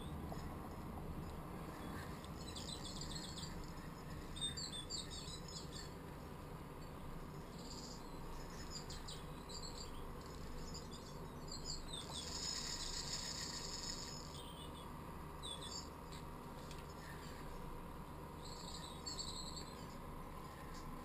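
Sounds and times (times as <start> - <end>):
low steady hiss: 0.0 - 21.0
small birds chirping: 0.0 - 21.0
bird trill: 1.7 - 6.0, 6.8 - 16.0, 18.4 - 20.0.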